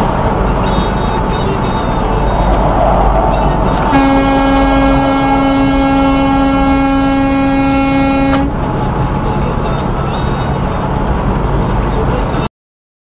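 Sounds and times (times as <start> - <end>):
truck and road rumble: 0.0 - 12.5
truck air horn blast: 2.2 - 8.6.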